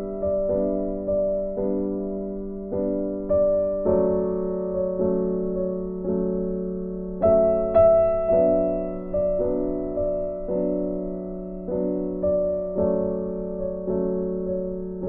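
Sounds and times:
slow gentle piano music: 0.0 - 15.0.

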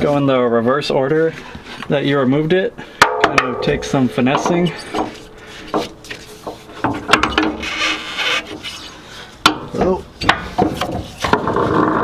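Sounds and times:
sharp metallic knocks: 3.0 - 7.7.

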